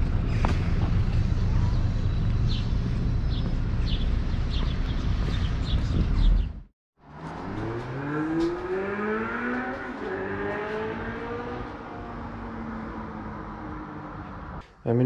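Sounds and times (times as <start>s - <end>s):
car engine accelerating: 7.0s - 14.6s.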